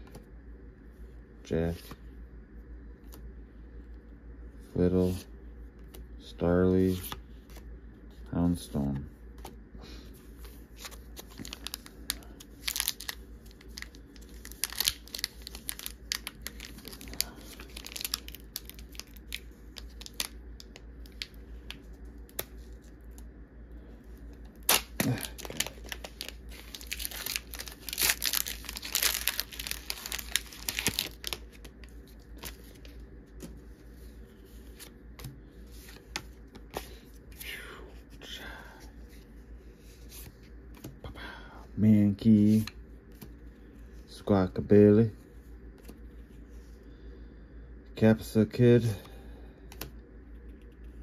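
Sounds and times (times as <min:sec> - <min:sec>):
foil wrapper crinkling: 0:10.8 - 0:22.9, 0:24.6 - 0:32.9
foil wrapper tearing: 0:11.3 - 0:20.4, 0:24.6 - 0:31.7.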